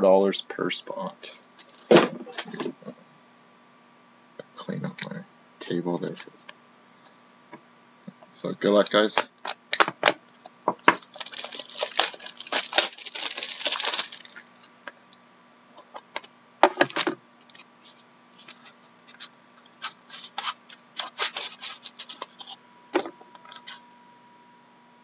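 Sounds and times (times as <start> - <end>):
plastic shrink-wrap crackling: 10.8 - 14.7, 18.4 - 22.5.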